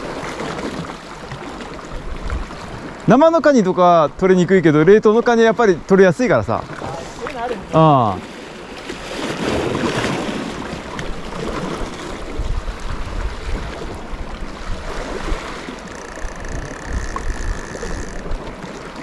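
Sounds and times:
sea waves against rocks: 0.0 - 19.0
wind buffeting microphone: 9.0 - 19.0.

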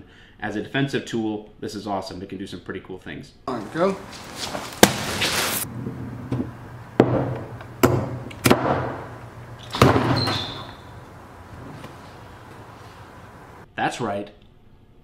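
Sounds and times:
wet crunching splatter: 4.0 - 5.7.

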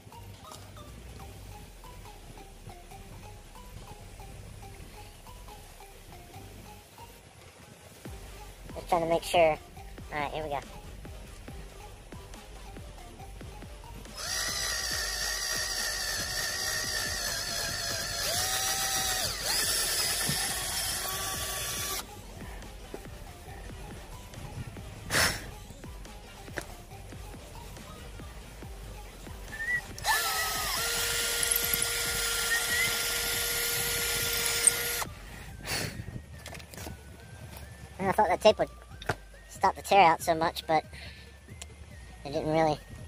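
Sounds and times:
electric drill boring wood: 14.2 - 22.0, 30.0 - 35.1.

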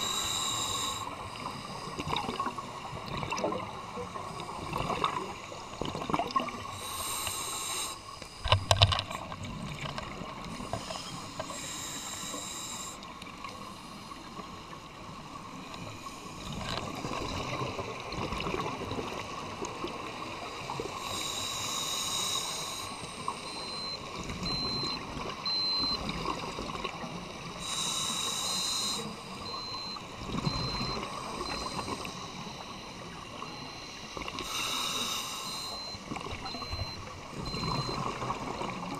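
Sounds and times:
underwater breathing bubbles: 0.0 - 9.8, 20.5 - 38.9.

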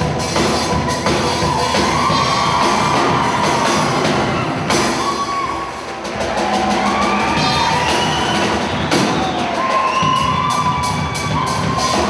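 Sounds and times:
crowd cheering: 0.0 - 12.0
steel band playing: 0.0 - 12.0.

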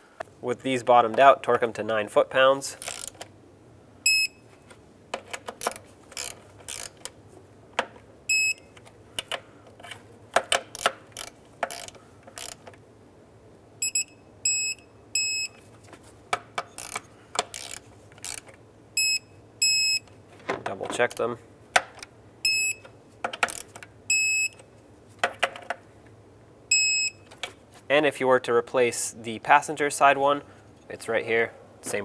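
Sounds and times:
torque wrench ratcheting clicks: 2.8 - 3.3, 5.6 - 7.1, 10.7 - 12.7, 16.7 - 18.5, 23.3 - 23.8
short high beeps: 4.1 - 4.4, 8.3 - 8.7, 13.8 - 15.6, 19.0 - 20.0, 22.4 - 22.8, 24.1 - 24.6, 26.7 - 27.2.

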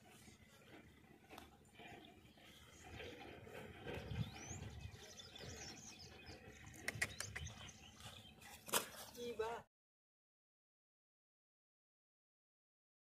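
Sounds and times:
small birds chirping: 0.0 - 9.6.

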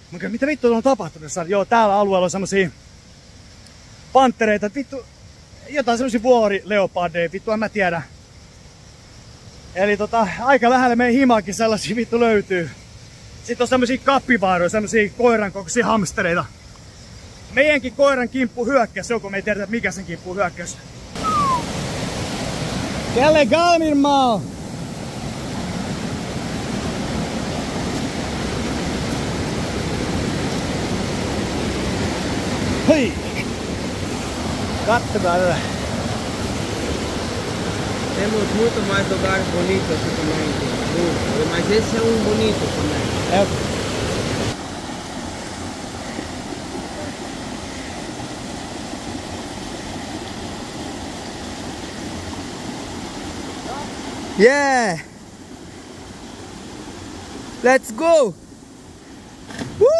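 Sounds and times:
waterfall rushing: 20.6 - 59.9.

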